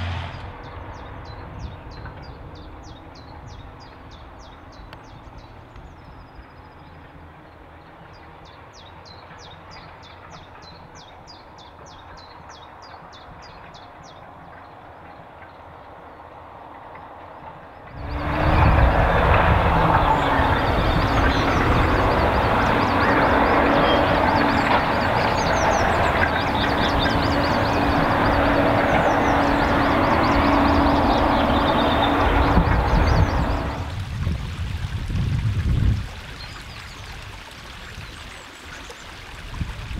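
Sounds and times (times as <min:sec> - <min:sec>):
tractor engine running: 0:17.8 - 0:34.4.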